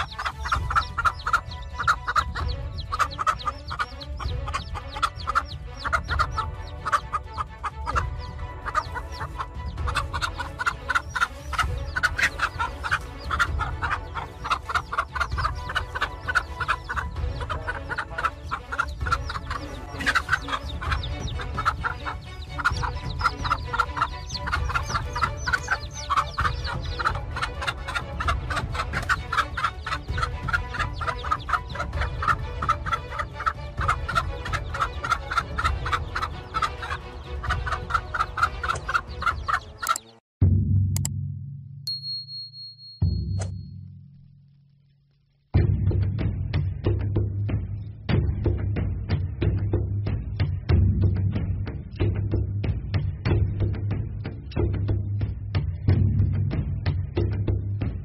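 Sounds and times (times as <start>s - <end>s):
hen clucking rapidly: 0.0s - 40.2s
low background music: 0.0s - 58.0s.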